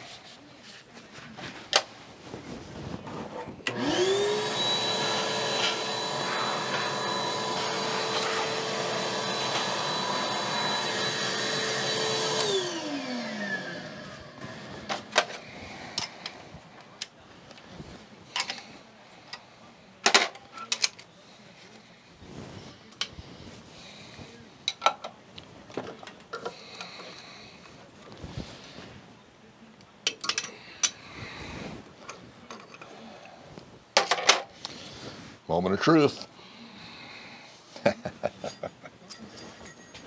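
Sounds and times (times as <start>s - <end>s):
small electric motor whining: 3.7s - 14.4s.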